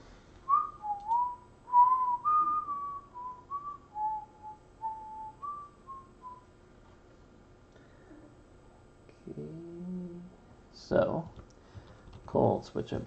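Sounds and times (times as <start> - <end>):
person whistling a tune: 0.5 - 6.5.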